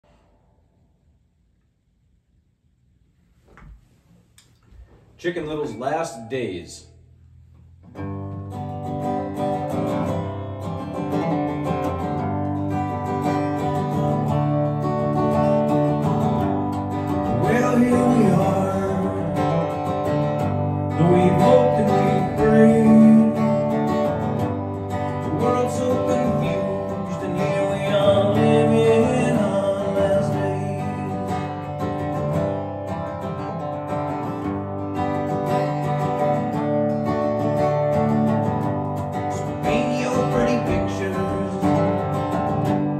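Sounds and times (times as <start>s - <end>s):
acoustic guitar strummed: 5.2s - 42.9s
man singing: 17.2s - 20.0s, 20.9s - 23.9s, 25.2s - 31.6s, 39.3s - 42.4s.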